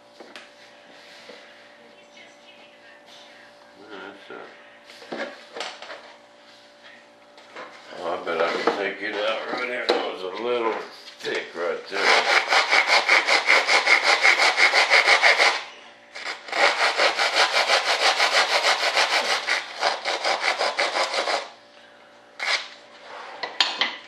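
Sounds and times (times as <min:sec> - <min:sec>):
scraping strokes on wood: 0:11.9 - 0:21.5.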